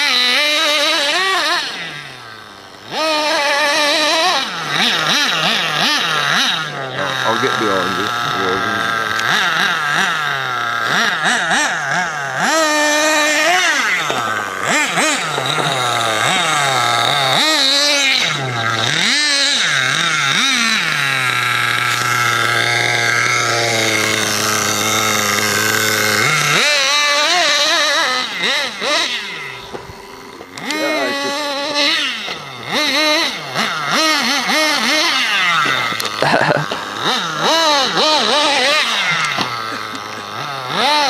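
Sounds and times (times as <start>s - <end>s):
rc buggy engine revving: 0.0s - 41.0s.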